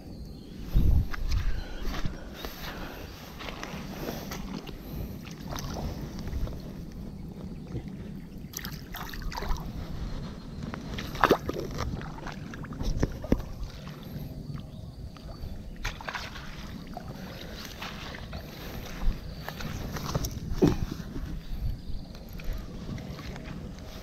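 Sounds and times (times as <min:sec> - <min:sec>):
low microphone rumble: 0:00.0 - 0:24.0
footsteps through dry grass: 0:00.6 - 0:06.8, 0:17.3 - 0:21.6.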